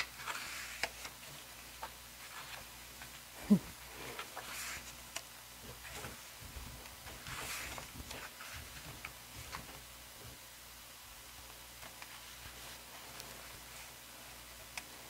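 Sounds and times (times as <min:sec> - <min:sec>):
paper pages swishing: 0:00.1 - 0:02.7, 0:07.1 - 0:09.6.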